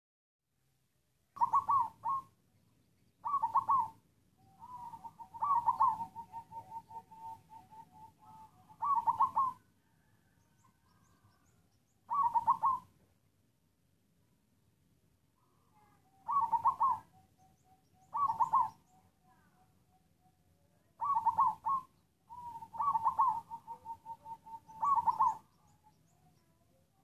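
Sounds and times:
dove cooing: 0:01.4 - 0:02.4, 0:03.2 - 0:13.0, 0:15.8 - 0:19.6, 0:20.9 - 0:27.0.

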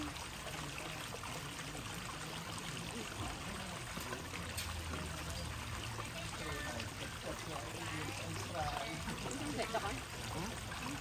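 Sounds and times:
trickle of running water: 0:00.0 - 0:11.0.

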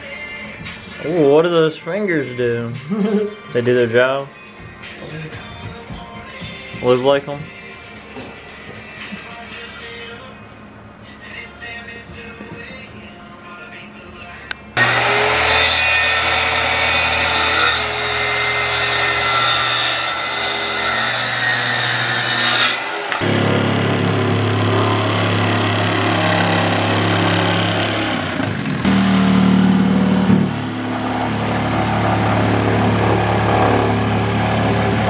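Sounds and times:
electric saw cutting wood: 0:14.8 - 0:35.0.

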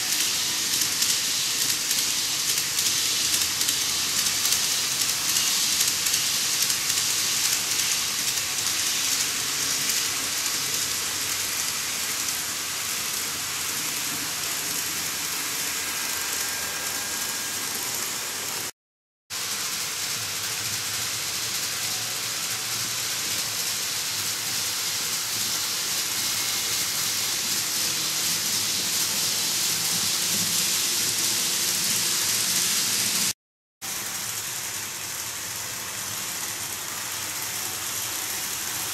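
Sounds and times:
faint motor whine: 0:00.0 - 0:18.7
model train wheels hissing: 0:00.0 - 0:18.7, 0:19.4 - 0:38.9.

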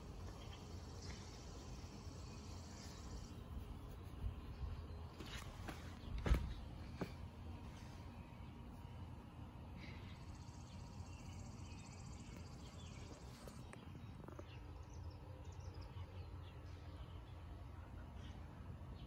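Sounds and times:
small birds chirping: 0:00.0 - 0:19.0.

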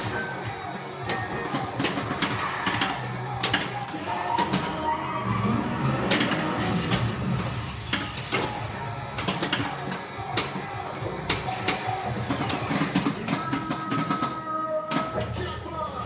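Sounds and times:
pinball mechanical clicks and knocks: 0:00.0 - 0:04.8, 0:06.1 - 0:10.7
pinball game music and effects: 0:00.0 - 0:15.6.

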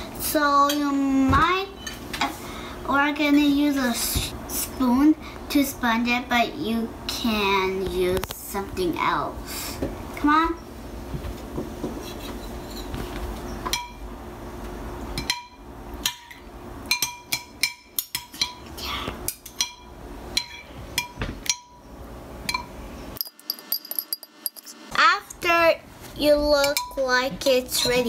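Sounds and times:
metal spoons clinking in bowl: 0:22.5 - 0:24.8.

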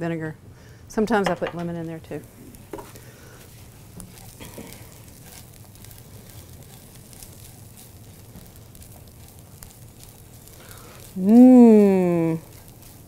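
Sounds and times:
food sizzling in a skillet: 0:02.1 - 0:13.0
spatula stirring: 0:02.6 - 0:13.0.

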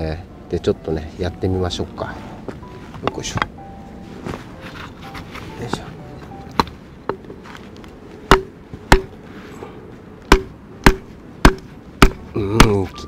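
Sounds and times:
hatchet knocking on wood: 0:08.3 - 0:09.1, 0:10.3 - 0:12.8.

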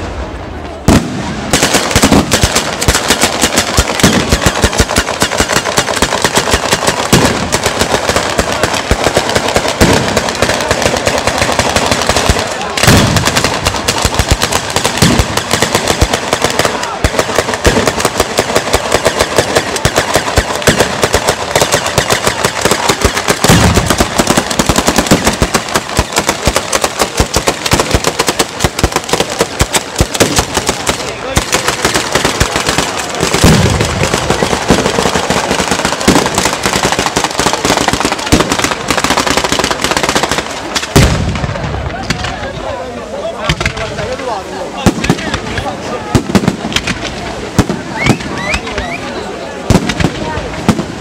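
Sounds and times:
heavy firecracker booms: 0:00.0 - 0:48.9, 0:49.5 - 0:51.0
firecrackers going off rapidly: 0:00.0 - 0:51.0.

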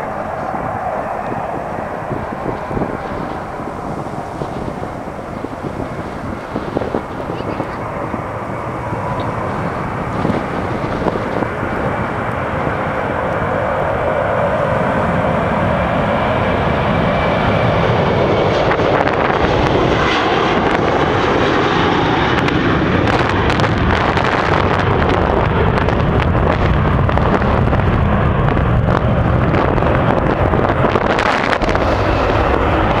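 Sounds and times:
jet engines roaring at takeoff: 0:00.0 - 0:33.0.

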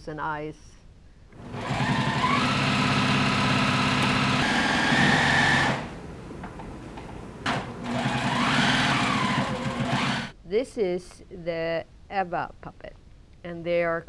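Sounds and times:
sewing machine stitching: 0:01.4 - 0:06.0, 0:07.5 - 0:10.3.

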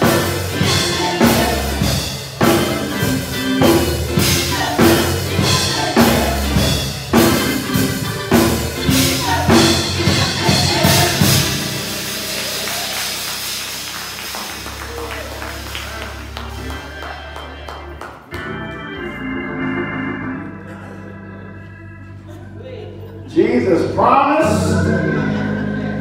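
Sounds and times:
gospel group singing with band: 0:00.0 - 0:13.9, 0:23.4 - 0:26.0
drums and tambourine beat: 0:00.0 - 0:14.2.

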